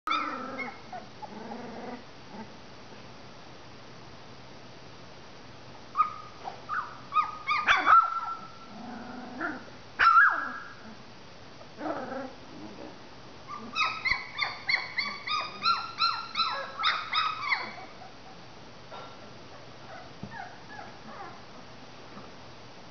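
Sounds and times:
puppies whimpering and squealing: 0.1 - 1.3, 13.5 - 18.2.

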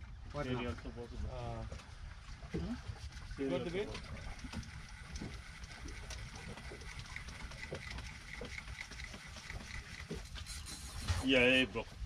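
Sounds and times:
boat engine rumble: 0.0 - 12.0.

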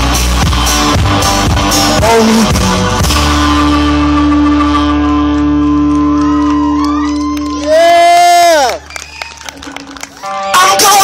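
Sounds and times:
drums: 0.0 - 6.4.

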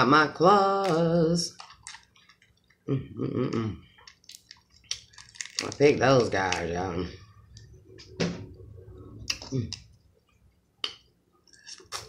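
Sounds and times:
crawfish shell cracking: 0.8 - 2.8, 4.0 - 6.7
wet eating sounds: 0.8 - 7.8, 9.0 - 12.0.

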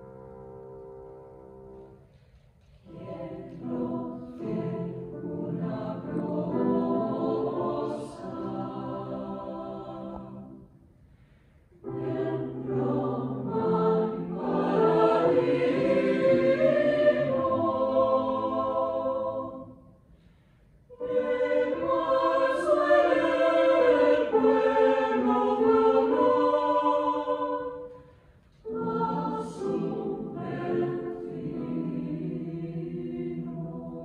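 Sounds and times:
mixed choir singing: 2.8 - 10.8, 11.8 - 20.0, 20.9 - 34.0.

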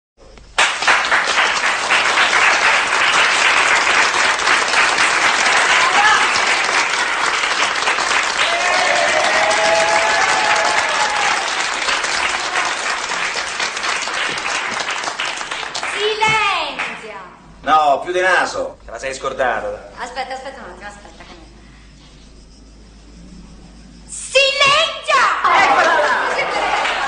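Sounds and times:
people applauding: 0.6 - 17.0, 25.5 - 27.0.

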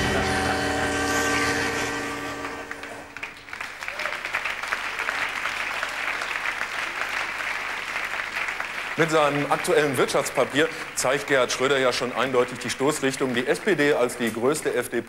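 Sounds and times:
held musical chord ringing: 0.0 - 3.3
audience applauding: 2.2 - 15.0.

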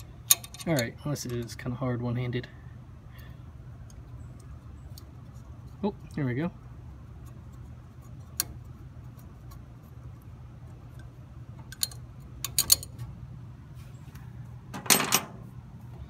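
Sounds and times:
metal clicks and clinks: 0.0 - 1.5, 11.7 - 13.0
low steady hum: 0.0 - 16.0
metal clattering on steel: 14.7 - 15.4.

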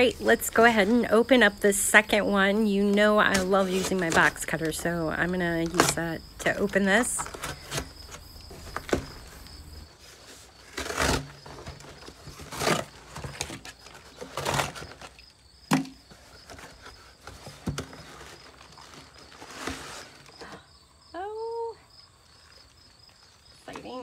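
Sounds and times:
cardboard box being cut open: 10.5 - 15.1.

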